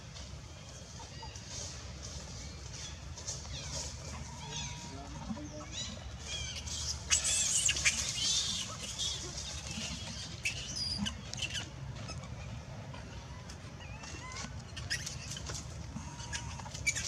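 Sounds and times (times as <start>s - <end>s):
branches and leaves rustling: 0.0s - 17.0s
baby monkey squealing: 5.6s - 12.3s, 13.8s - 15.4s.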